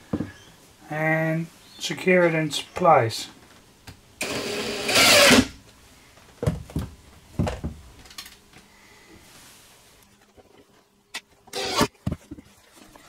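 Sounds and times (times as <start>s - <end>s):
drill driving screw into wood: 4.2s - 5.6s, 11.5s - 11.9s.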